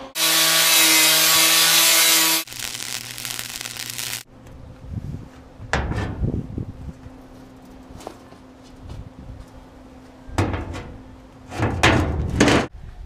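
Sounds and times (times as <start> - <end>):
welder hum: 0.0 - 4.3
welding arc sizzling: 0.0 - 4.3.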